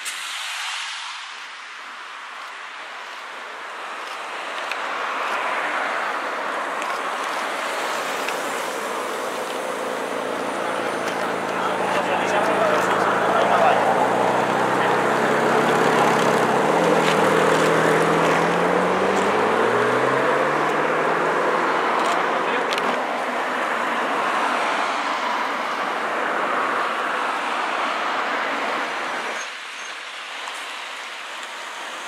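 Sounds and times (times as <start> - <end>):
road traffic noise: 0.0 - 32.0
car engine accelerating: 6.8 - 25.3.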